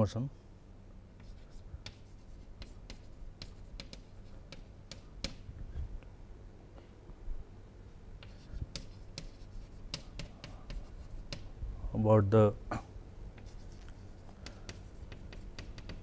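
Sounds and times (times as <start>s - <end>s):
low room hum: 0.0s - 16.0s
chalk writing on chalkboard: 1.2s - 5.4s, 8.2s - 11.5s, 13.4s - 16.0s.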